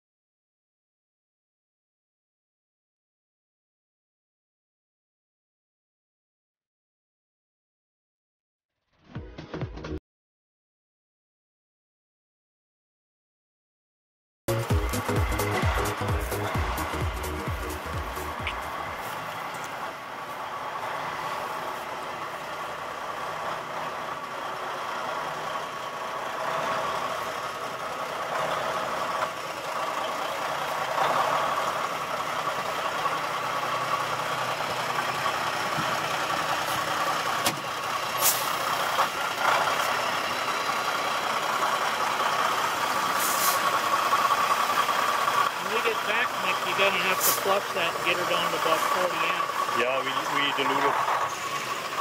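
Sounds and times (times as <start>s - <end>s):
truck diesel engine running: 14.5s - 52.0s
short hisses: 38.2s - 38.6s, 43.1s - 43.7s, 47.2s - 47.4s.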